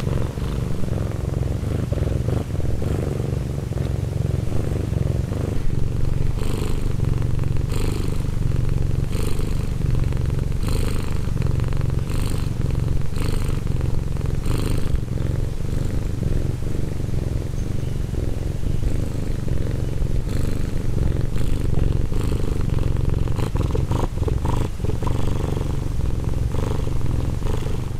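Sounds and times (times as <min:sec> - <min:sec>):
cat purring: 0:00.0 - 0:27.9.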